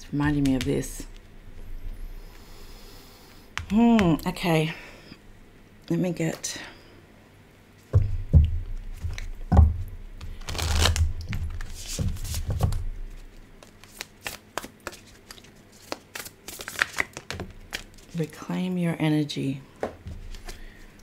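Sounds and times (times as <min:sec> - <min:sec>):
paper cards rustling and knocking: 0:07.9 - 0:18.2, 0:19.8 - 0:20.6.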